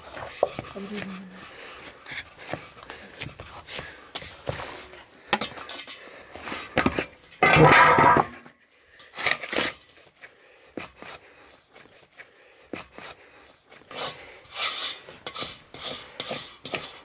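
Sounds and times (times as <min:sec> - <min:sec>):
dough being kneaded by hand: 0:00.0 - 0:05.8, 0:09.2 - 0:17.0
bowl knocking and scraping: 0:07.4 - 0:08.5.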